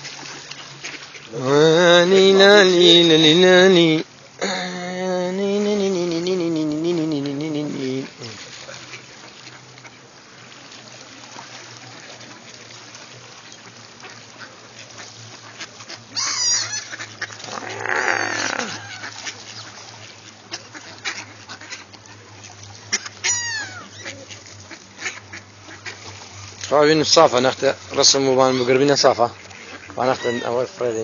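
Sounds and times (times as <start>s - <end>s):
faint steady background noise: 0.0s - 31.0s
water birds calling: 0.0s - 31.0s.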